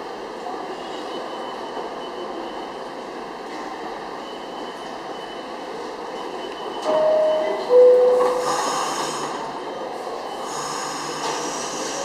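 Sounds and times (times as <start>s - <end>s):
two-tone door chime: 6.8s - 8.4s.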